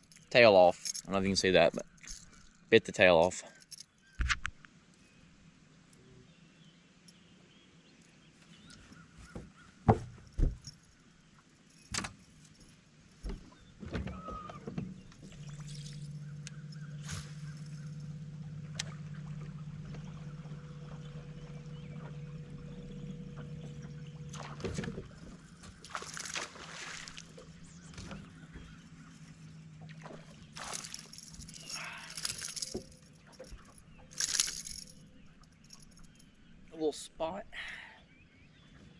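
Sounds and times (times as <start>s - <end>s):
sharp knocks: 9.4s - 10.7s
electric trolling motor humming: 14.4s - 36.4s.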